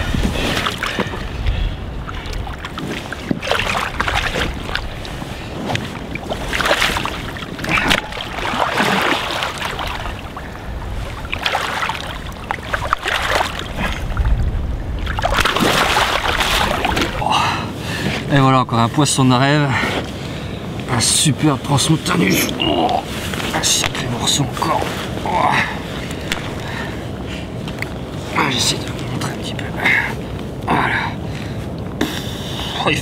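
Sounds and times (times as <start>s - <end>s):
wind rumble on microphone: 0.0s - 19.0s
water splashing and sloshing: 0.0s - 19.1s, 19.8s - 32.0s.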